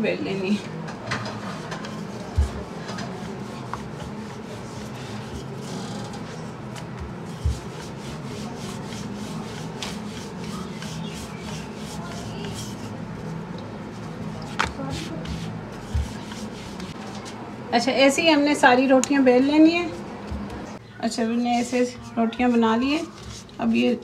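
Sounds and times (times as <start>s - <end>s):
rolling pin rubbing on dough: 1.3s - 17.2s, 21.4s - 24.0s.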